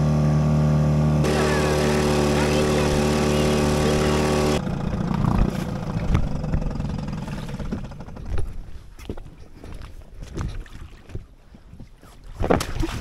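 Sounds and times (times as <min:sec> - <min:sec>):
outboard motor running: 0:00.0 - 0:09.9.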